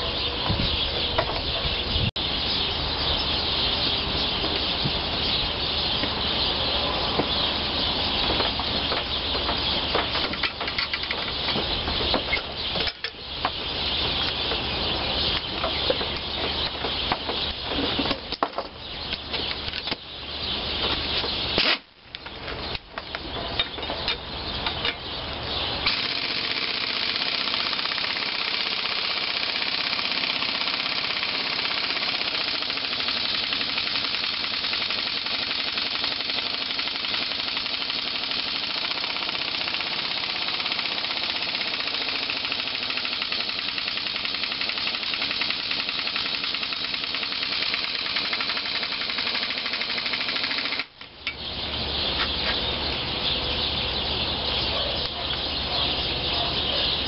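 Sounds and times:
pneumatic air hammer rattling: 0:10.0 - 0:13.2, 0:25.8 - 0:51.4.

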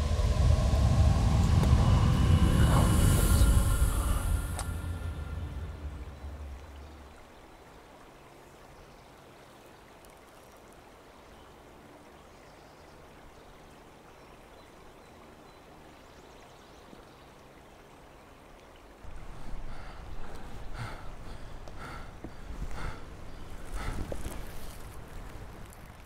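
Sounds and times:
low rumble: 0:00.0 - 0:07.4
faint rushing background noise: 0:00.0 - 0:09.1.

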